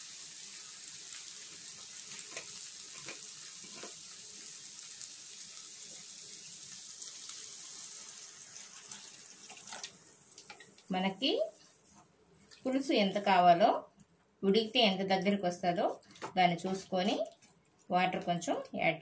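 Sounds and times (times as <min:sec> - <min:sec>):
water poured into hot pan: 0:00.0 - 0:10.9
pan sizzling: 0:00.0 - 0:13.8.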